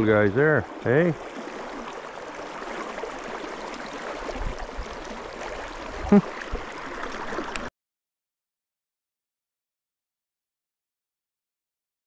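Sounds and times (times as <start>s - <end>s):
river water rippling past hull: 0.0s - 7.7s.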